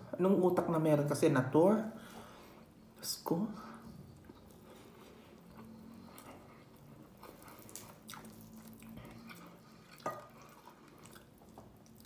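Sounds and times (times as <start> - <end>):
person chewing: 4.1 - 12.0.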